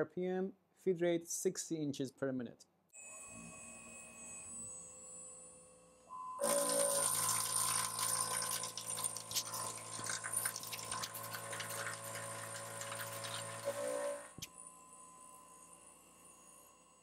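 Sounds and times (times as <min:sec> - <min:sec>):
mill spindle whine: 0:06.4 - 0:17.0.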